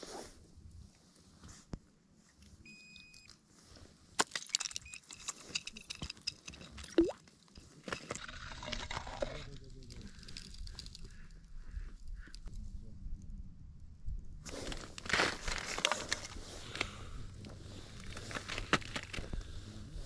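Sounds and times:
brief steady beep: 2.7 - 3.3.

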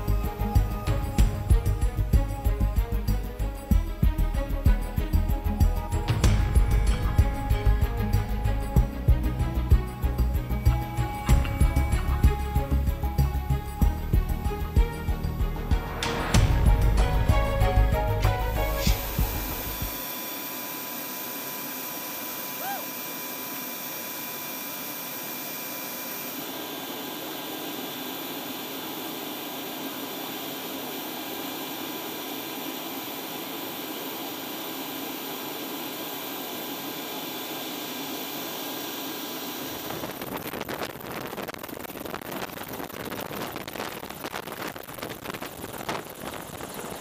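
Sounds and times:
helicopter turbine whine: 0.0 - 42.8, 44.8 - 47.0
helicopter rotor chopping: 39.4 - 47.0.

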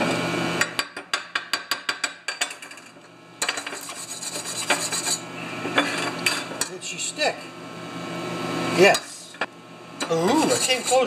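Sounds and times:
wire brush scrubbing metal: 3.5 - 5.3, 10.2 - 11.0.

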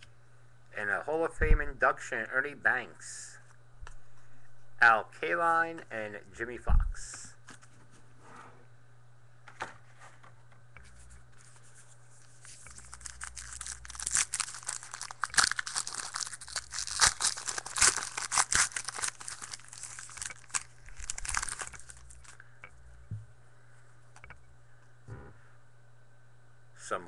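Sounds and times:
wrapper tearing and crinkling: 12.2 - 22.4.

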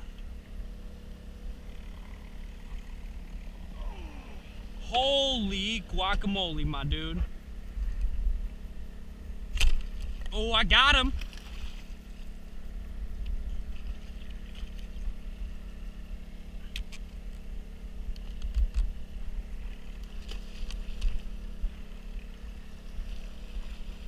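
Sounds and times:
boat motor humming: 0.0 - 24.0.

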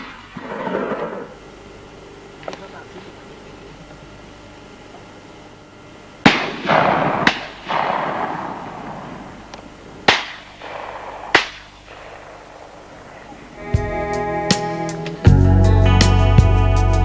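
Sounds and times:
shotgun shots echoing: 0.0 - 1.4, 6.2 - 13.6.

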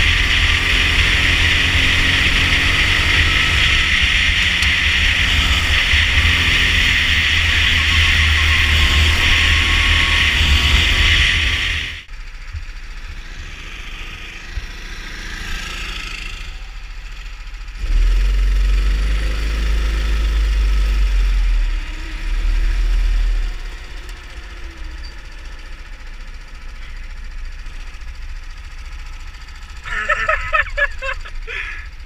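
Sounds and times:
kart engine at low revs: 0.0 - 32.0.

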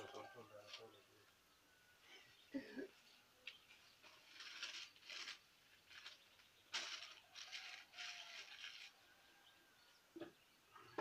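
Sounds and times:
faint rustling and crinkling: 0.0 - 1.0, 3.4 - 9.5.

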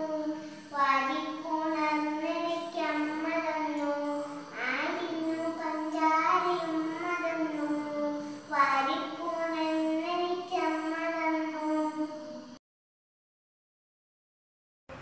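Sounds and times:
girl singing: 0.0 - 12.5.

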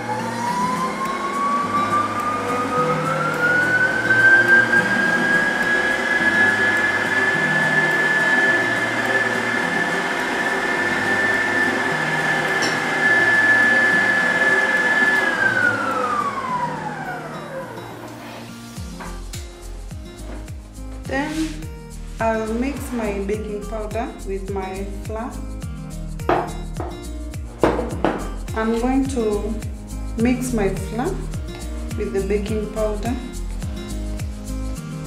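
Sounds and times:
stand mixer motor whining: 0.0 - 18.1.

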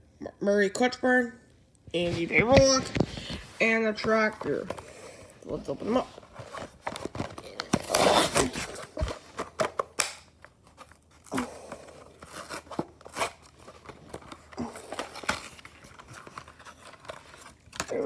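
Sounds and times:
plastic package tearing and crinkling: 6.4 - 18.0.

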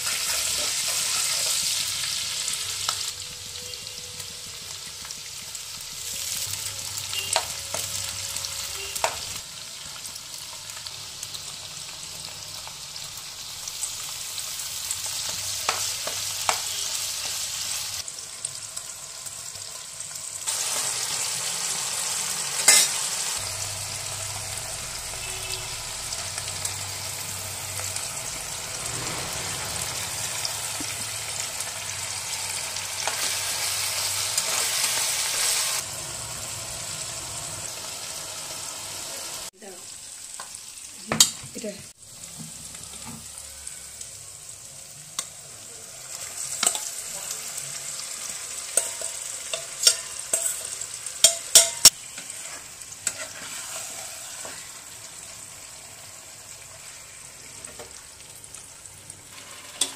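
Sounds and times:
masala sizzling in hot oil: 0.0 - 59.9
metal spatula scraping pan: 22.6 - 23.1, 48.8 - 54.8.

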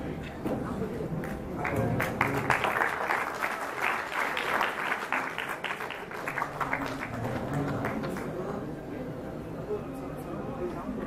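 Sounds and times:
audience applauding: 1.2 - 8.4.

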